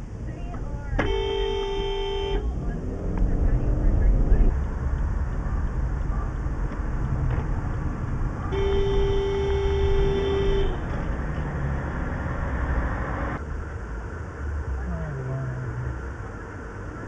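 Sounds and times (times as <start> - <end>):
road and engine rumble: 0.0 - 17.0
car horn: 1.0 - 2.8, 8.5 - 11.2.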